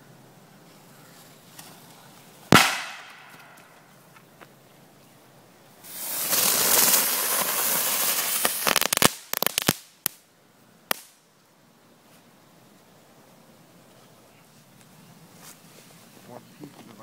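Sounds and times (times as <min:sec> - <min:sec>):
firework crackles: 0:01.4 - 0:04.0, 0:05.8 - 0:11.3
firework pops: 0:02.5 - 0:03.8
firework rushing hiss: 0:05.8 - 0:10.2.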